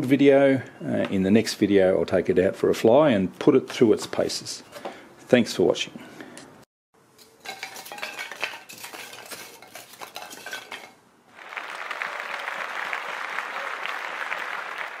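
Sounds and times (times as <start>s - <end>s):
applause: 11.3s - 15.0s.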